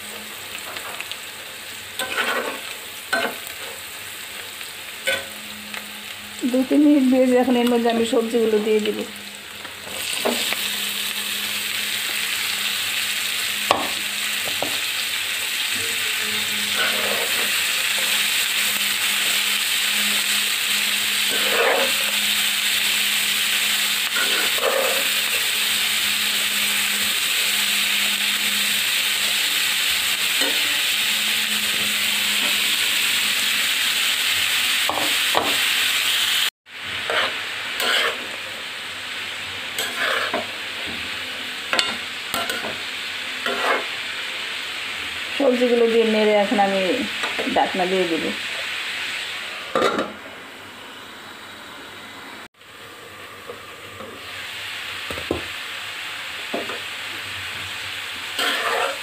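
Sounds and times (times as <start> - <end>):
vegetables sizzling in hot oil: 0.0 - 59.0
spatula scraping pan: 2.0 - 3.8, 15.7 - 20.4, 21.2 - 22.4, 24.0 - 32.8, 37.0 - 38.4, 39.7 - 41.0, 43.4 - 44.0, 58.3 - 59.0.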